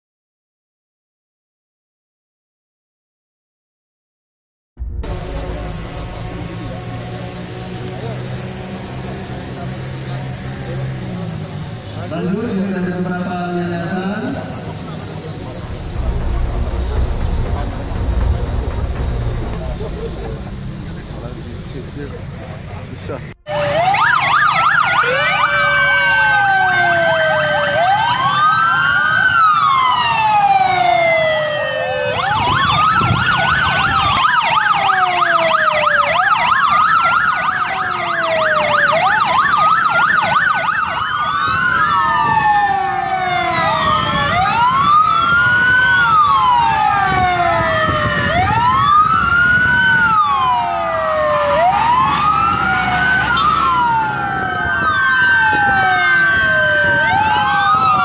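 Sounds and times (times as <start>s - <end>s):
emergency vehicle sirens wailing: 4.8s - 58.0s.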